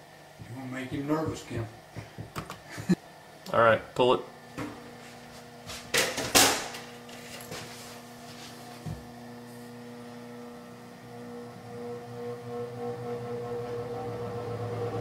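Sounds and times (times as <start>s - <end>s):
fan humming: 0.0s - 15.0s
rustling and scraping: 4.8s - 9.1s.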